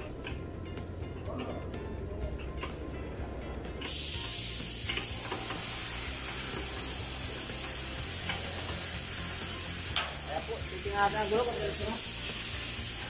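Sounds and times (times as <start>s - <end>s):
high hiss of escaping air: 3.8s - 13.0s.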